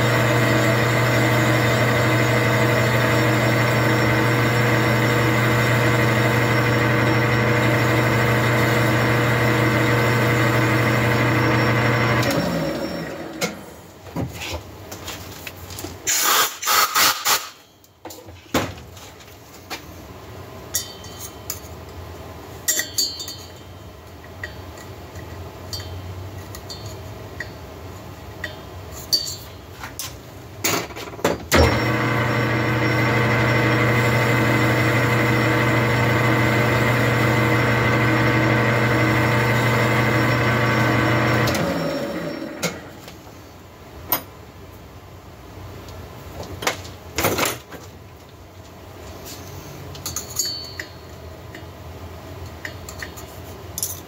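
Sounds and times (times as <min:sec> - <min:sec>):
lathe motor humming: 0:00.0 - 0:13.4, 0:31.6 - 0:42.9
tools clattering and clicking: 0:22.6 - 0:27.6, 0:49.9 - 0:51.7, 0:52.4 - 0:54.0.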